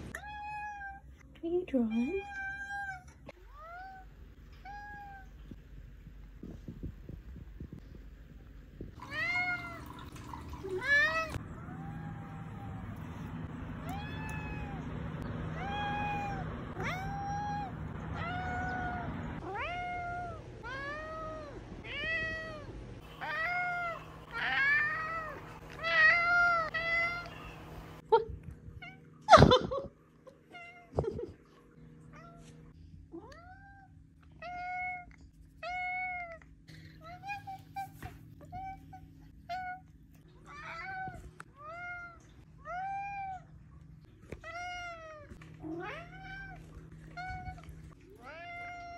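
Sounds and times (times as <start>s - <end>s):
cat meowing: 13.8s - 14.9s, 15.6s - 27.8s.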